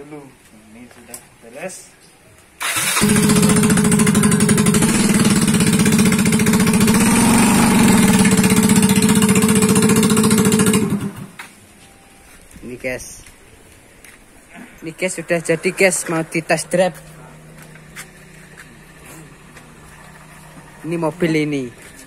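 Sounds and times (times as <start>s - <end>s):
scooter engine running: 2.7s - 11.4s, 15.2s - 22.0s.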